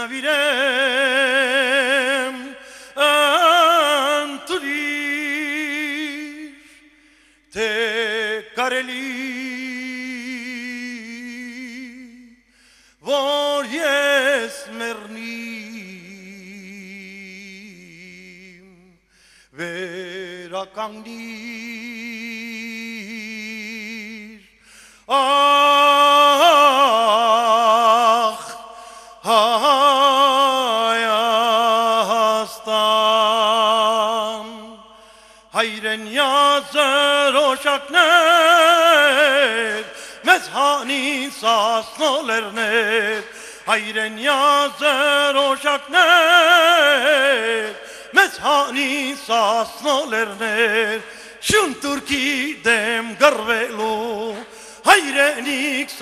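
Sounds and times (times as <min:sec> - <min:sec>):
man singing solo: 0:35.6 - 0:56.0.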